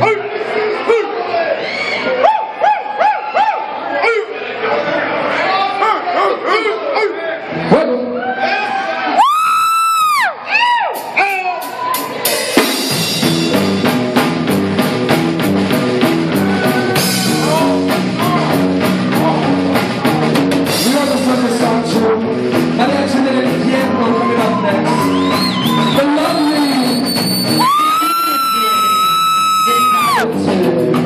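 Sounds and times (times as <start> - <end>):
live rock band: 9.2 - 31.0
drum kit beat: 10.0 - 31.0
person singing: 27.6 - 31.0.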